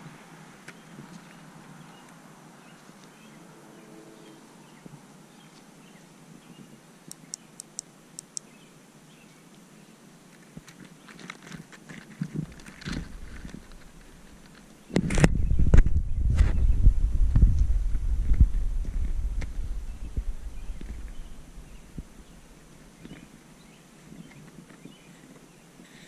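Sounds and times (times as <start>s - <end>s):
outdoor background hiss: 0.0s - 26.0s
high ticks: 7.1s - 8.5s.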